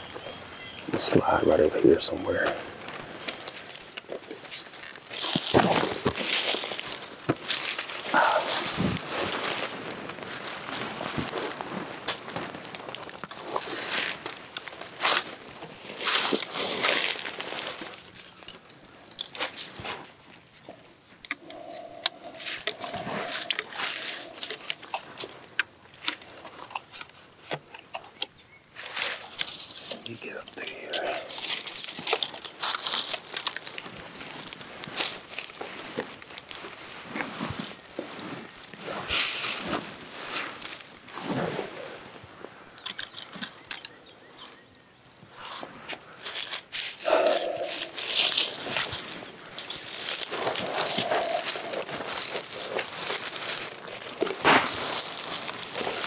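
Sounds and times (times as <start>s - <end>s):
sharp crackles: 0.5s - 44.6s, 45.3s - 56.0s
dry leaves crunching and rustling: 2.3s - 18.5s, 21.9s - 26.4s, 28.8s - 41.3s, 46.1s - 56.0s.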